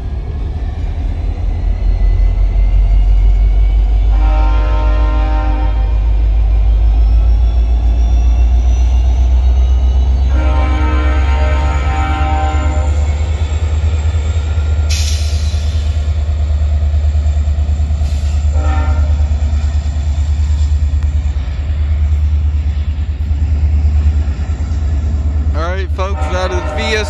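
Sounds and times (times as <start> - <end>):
diesel locomotive rumble: 0.0 - 27.0
locomotive horn blasts: 4.1 - 6.2, 10.3 - 13.1, 18.5 - 19.4, 25.9 - 27.0.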